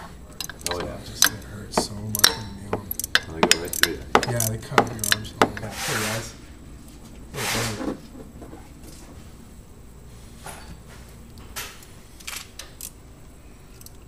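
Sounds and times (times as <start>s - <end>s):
metallic tool clicks: 2.1s - 5.3s
short hisses: 7.3s - 7.8s.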